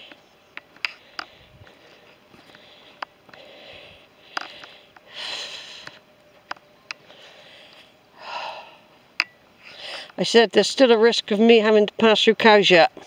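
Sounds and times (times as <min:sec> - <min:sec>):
footsteps on stony path: 0:00.0 - 0:05.0.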